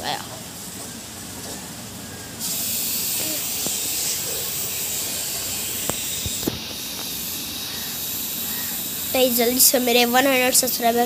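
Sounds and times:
high-pitched hiss: 2.4s - 11.0s.

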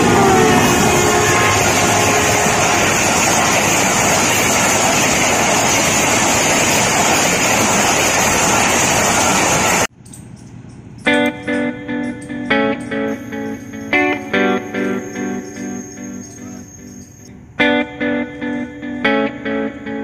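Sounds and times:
train horn: 0.0s - 4.6s
train passing at speed: 0.0s - 9.9s, 13.1s - 17.3s.

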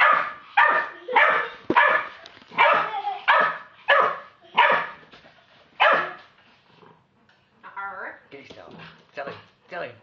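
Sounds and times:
puppy barking: 0.0s - 5.0s, 5.8s - 6.3s.

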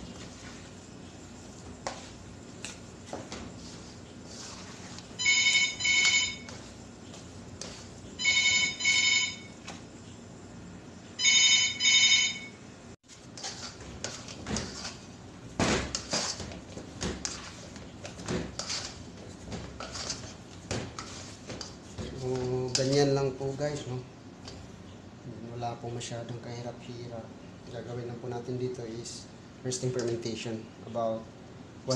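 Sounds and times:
dough kneaded in metal bowl: 0.0s - 8.1s, 13.0s - 24.8s
telephone ringing: 5.2s - 6.6s, 8.2s - 9.6s, 11.2s - 12.6s.

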